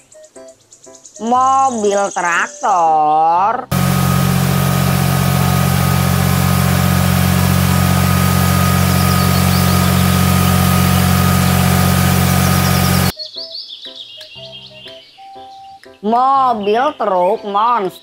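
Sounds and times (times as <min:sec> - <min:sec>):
tractor diesel engine running: 0:03.7 - 0:13.1.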